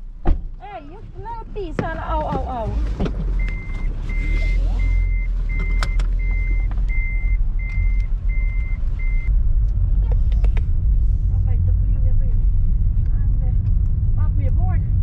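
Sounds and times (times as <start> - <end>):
car engine and road noise: 0.0 - 15.0
car warning beeper: 3.4 - 9.3.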